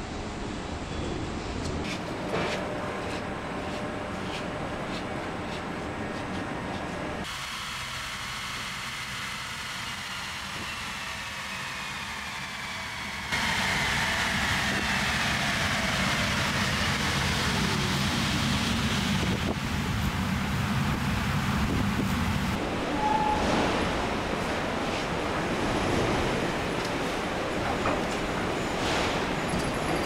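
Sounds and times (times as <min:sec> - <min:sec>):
road and wind noise: 0:09.6 - 0:30.0.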